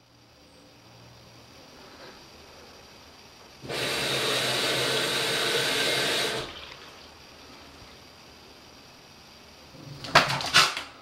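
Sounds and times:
steady low hum: 0.0 - 11.0
washing machine water rushing: 3.6 - 7.2.

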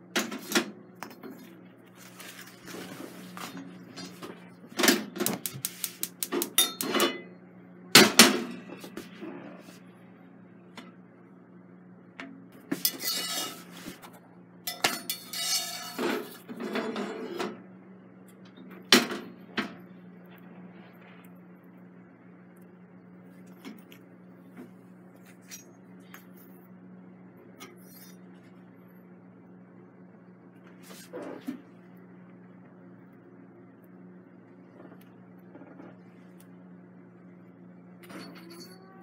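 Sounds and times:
steady low hum: 0.0 - 39.0
tongs and skillet clattering on grate: 4.9 - 7.3, 12.8 - 13.7, 14.7 - 17.0.

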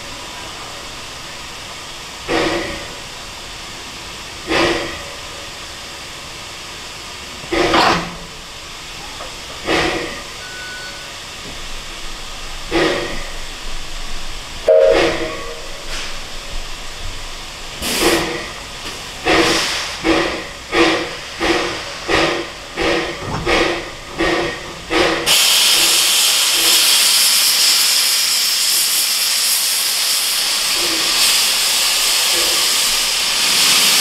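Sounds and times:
steady hiss of steam: 0.0 - 34.0
steam locomotive exhaust chuffs: 1.1 - 34.0.

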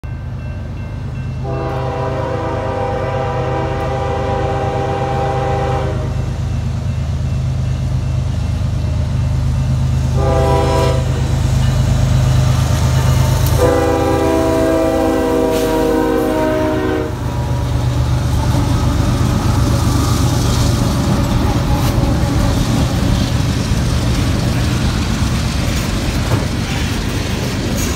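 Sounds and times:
locomotive rumble: 0.0 - 27.9
train air horn blasts: 1.4 - 6.4, 10.1 - 11.4, 13.4 - 17.6.

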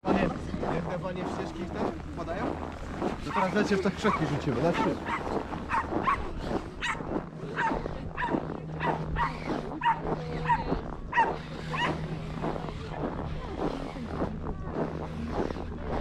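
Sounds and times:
dog barking: 3.3 - 12.0.

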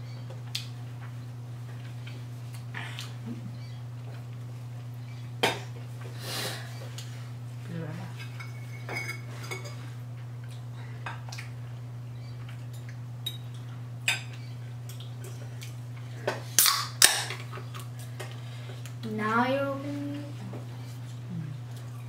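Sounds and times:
steady low hum: 0.0 - 22.0
forks clinking against plates: 8.2 - 9.8.

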